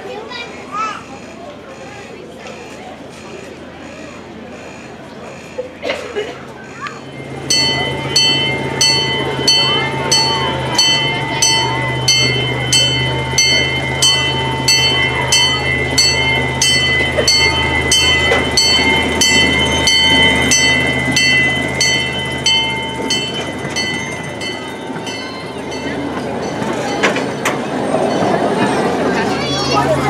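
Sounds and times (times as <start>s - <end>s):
miniature train running: 0.0s - 30.0s
bell ringing: 7.0s - 30.0s.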